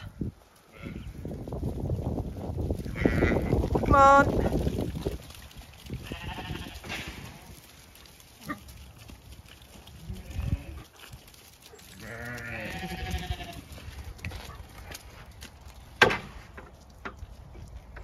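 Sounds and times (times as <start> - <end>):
sheep bleating: 0.7 - 1.1, 2.9 - 3.6, 6.0 - 7.1, 10.0 - 10.9, 12.0 - 13.8.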